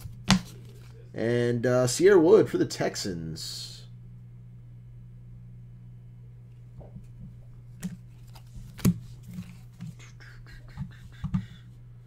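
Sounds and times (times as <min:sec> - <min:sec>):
steady low hum: 0:00.0 - 0:12.0.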